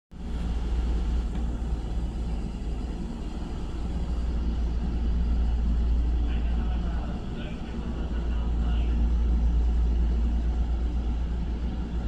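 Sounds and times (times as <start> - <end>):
electric train humming: 0.1 - 12.0.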